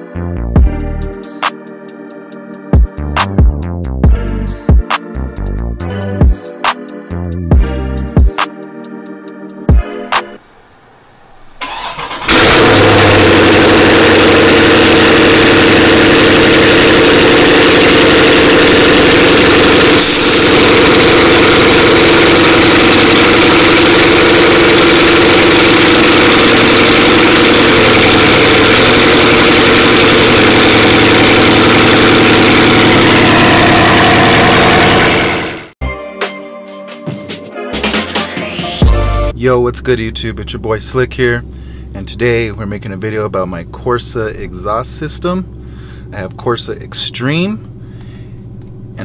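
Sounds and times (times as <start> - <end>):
engine cranking: 11.6 - 35.7
loud car engine idling: 11.6 - 35.8, 41.2 - 46.5, 47.6 - 49.0.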